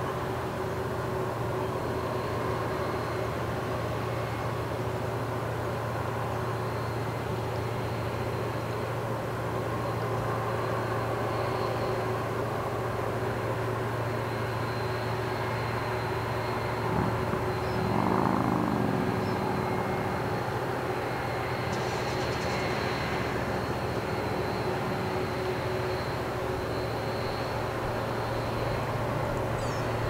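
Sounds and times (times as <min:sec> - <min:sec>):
faint high whine: 0:00.0 - 0:30.0
ship engines droning: 0:00.0 - 0:30.0.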